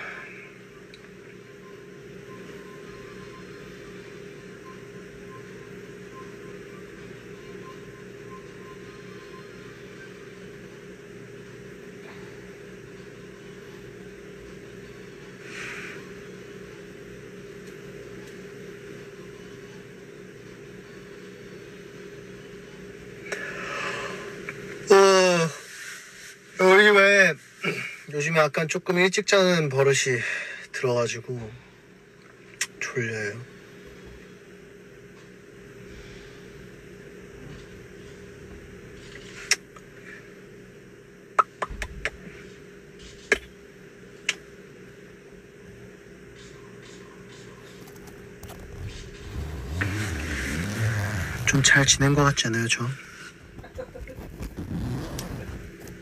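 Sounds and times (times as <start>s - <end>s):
faint steady hum: 0.0s - 56.0s
car cabin hum and air hiss: 47.5s - 56.0s.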